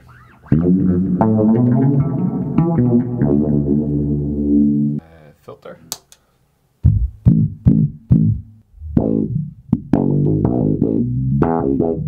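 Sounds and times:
electric bass through filter pedal: 0.5 - 5.0, 6.9 - 12.0.

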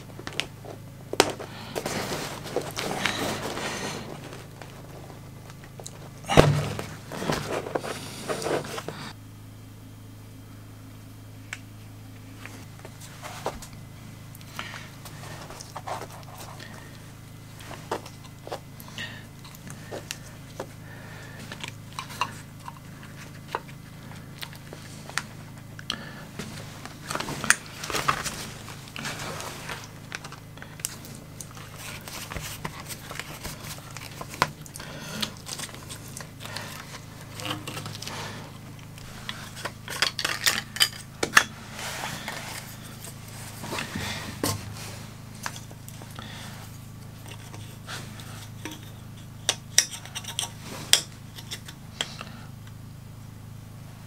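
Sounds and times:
steady low hum: 0.0 - 54.0
paper or cloth rustling: 1.5 - 5.4, 26.4 - 30.3.

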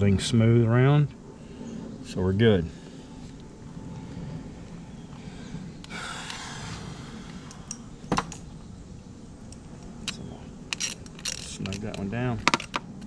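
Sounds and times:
sharp click of metal parts: 9.5 - 13.0.

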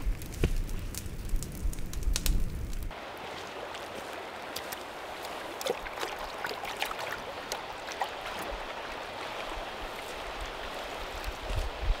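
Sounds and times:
campfire crackling and popping: 0.0 - 9.3
river flowing: 2.9 - 12.0
pot dipped in water splashing: 3.2 - 8.5.

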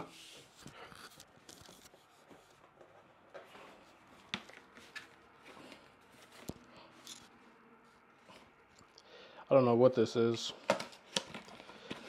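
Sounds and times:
box handling rustles: 10.6 - 12.0.

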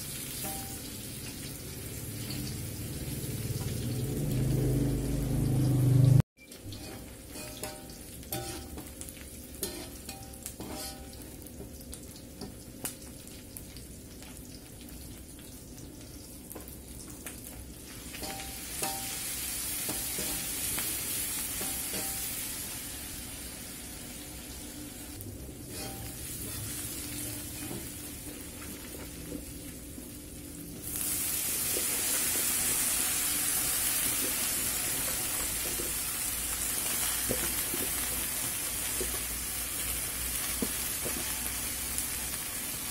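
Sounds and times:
food sizzling in hot oil: 0.0 - 42.9
metal spatula scraping wok: 6.4 - 8.9, 9.6 - 11.2, 18.2 - 22.5, 25.5 - 28.3.

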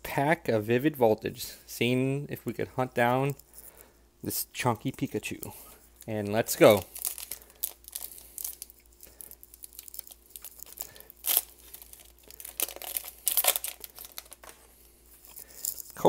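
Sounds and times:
foil wrapper tearing and crinkling: 6.5 - 14.6, 15.2 - 16.0.

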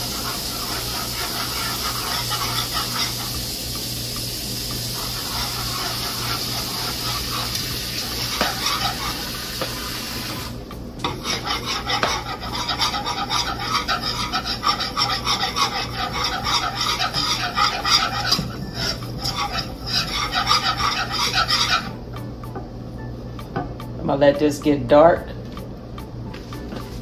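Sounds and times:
whisk scraping metal skillet: 0.0 - 3.9, 4.6 - 22.0.

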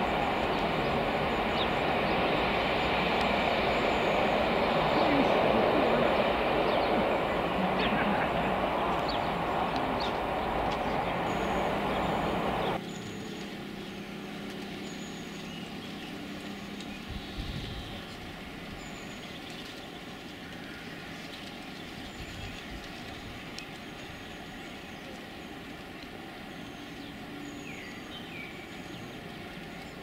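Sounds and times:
train coaches rumbling on rails: 0.0 - 12.8
birds chirping: 0.0 - 30.0
distant diesel locomotive drone: 0.0 - 30.0.

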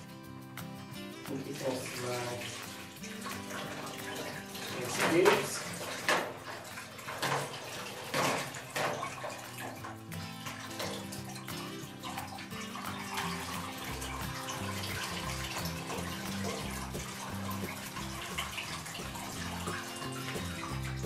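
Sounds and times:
water sloshing in a plastic bowl: 1.1 - 21.0
background music with low bass: 9.9 - 21.0.

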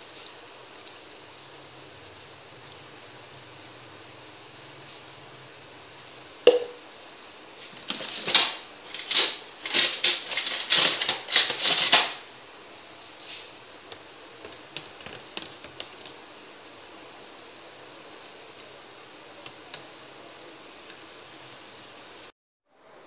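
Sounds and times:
sharp knock: 6.5 - 6.8
utensils clattering in plastic jug: 7.7 - 12.2.

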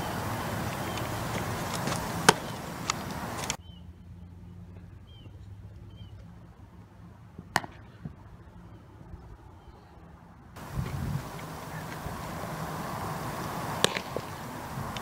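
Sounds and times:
outdoor wind noise: 0.0 - 15.0
softball striking bat or glove: 0.1 - 3.6, 13.4 - 15.0.

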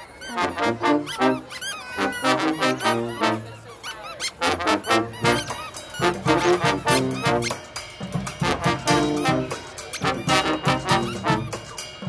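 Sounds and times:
brass band playing: 0.2 - 3.7, 4.3 - 11.9
sousaphone bass line: 4.8 - 7.7, 8.3 - 11.8
snare drum: 4.9 - 11.8.

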